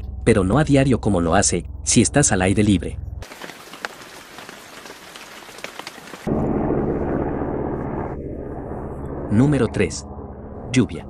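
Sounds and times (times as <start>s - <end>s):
rain patter: 3.2s - 6.3s.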